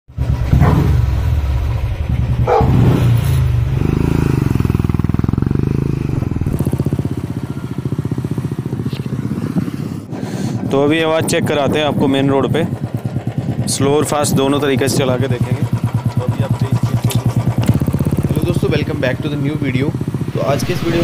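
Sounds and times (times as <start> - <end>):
motorcycle engine revving: 0.1 - 21.0
dog barking: 2.4 - 2.8.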